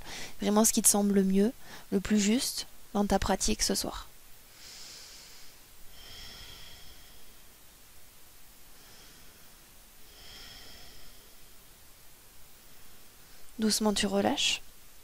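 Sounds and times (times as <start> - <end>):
woman breathing softly: 0.0 - 0.4, 1.6 - 1.9, 4.5 - 7.6, 8.6 - 11.7.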